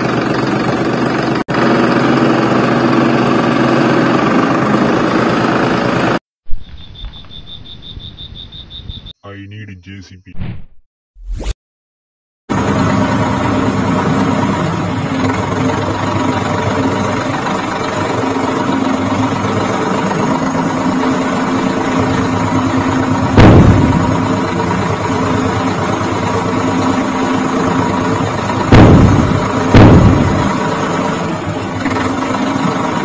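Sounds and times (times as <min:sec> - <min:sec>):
loud knock: 0:28.7 - 0:30.6.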